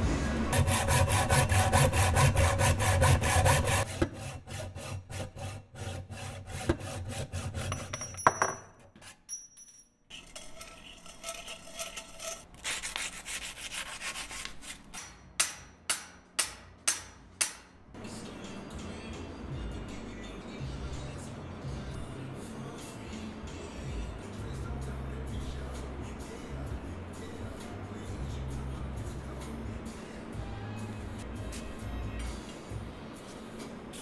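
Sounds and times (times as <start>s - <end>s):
hacksaw cutting metal tube: 0.5s - 8.1s, 10.1s - 16.1s.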